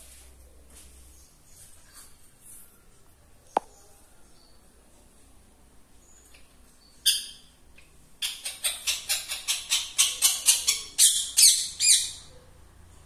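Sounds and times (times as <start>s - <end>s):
parakeet shrill calls: 8.2s - 12.2s.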